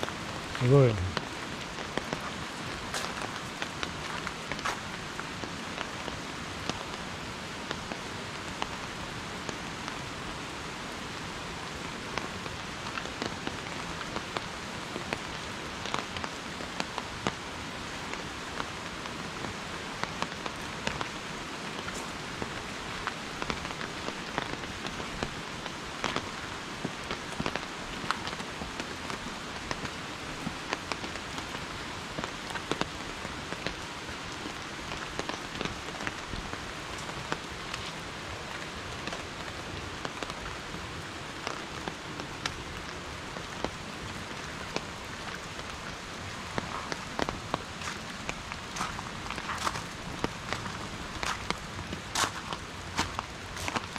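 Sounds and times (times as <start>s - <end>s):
raindrops ticking close by: 0.0s - 53.9s
steady rain: 0.0s - 53.9s.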